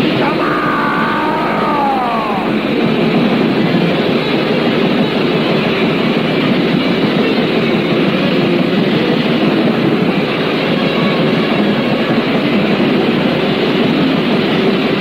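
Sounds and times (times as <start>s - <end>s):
distorted guitars: 0.0s - 3.0s
drums: 0.0s - 15.0s.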